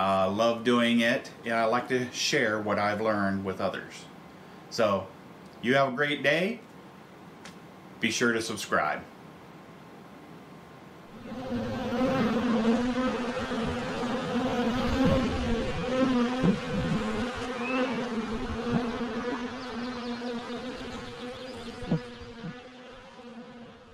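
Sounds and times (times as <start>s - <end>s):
honey bees buzzing: 11.1s - 23.9s.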